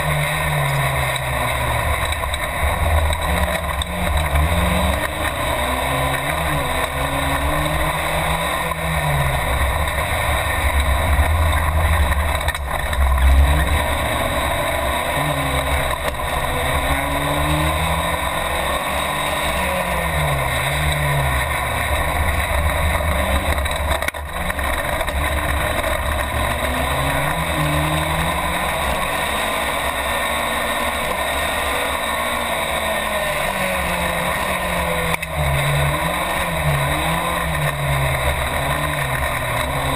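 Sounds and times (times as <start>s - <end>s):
race car engine revving: 0.0s - 39.9s
road noise rush: 0.0s - 39.9s.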